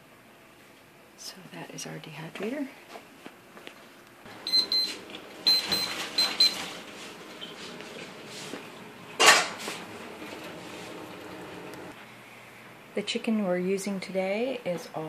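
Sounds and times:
dishes and utensils clinking: 9.2s - 9.7s.

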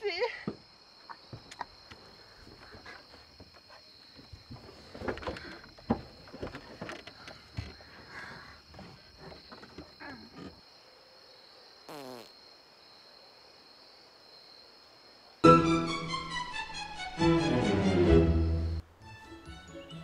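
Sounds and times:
crickets chirring: 0.0s - 15.4s.

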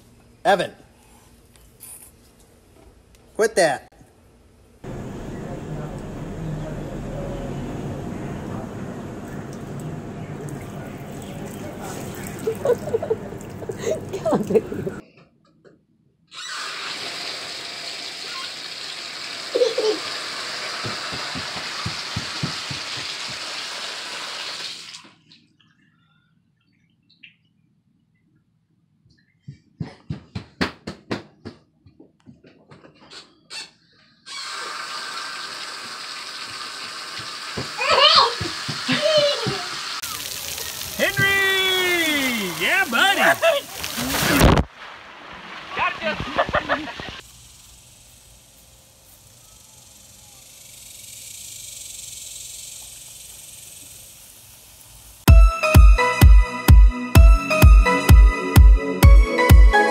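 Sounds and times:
bathtub tap water running: 4.9s - 15.0s, 16.7s - 25.1s, 34.3s - 46.7s
electronic dance music: 55.3s - 59.9s.

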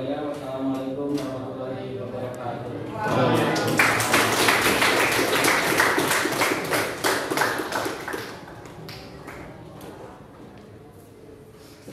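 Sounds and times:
small group clapping: 3.1s - 9.7s.

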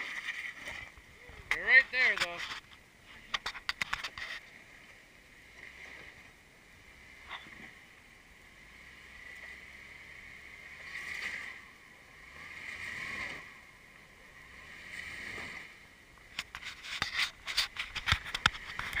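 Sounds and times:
sharp clicks and knocks: 1.5s - 4.4s, 16.3s - 19.0s
car engine revving: 4.5s - 16.3s.

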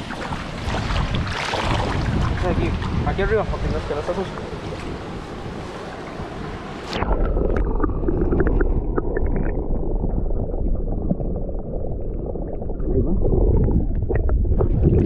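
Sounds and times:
muffled low rumble: 7.0s - 15.0s.

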